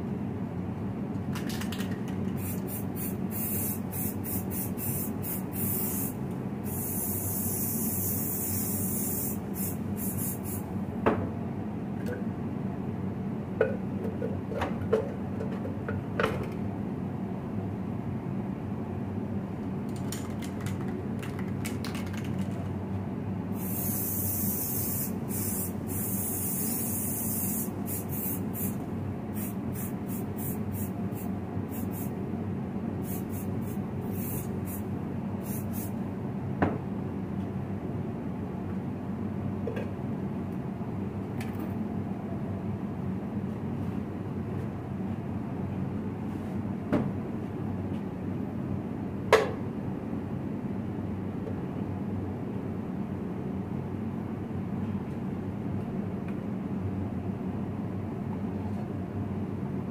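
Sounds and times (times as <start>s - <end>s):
steady low hum: 2.0s - 20.2s, 20.9s - 55.0s
spray paint can hissing: 2.4s - 10.6s, 23.6s - 28.8s, 29.4s - 32.1s, 33.0s - 34.8s, 35.4s - 35.9s.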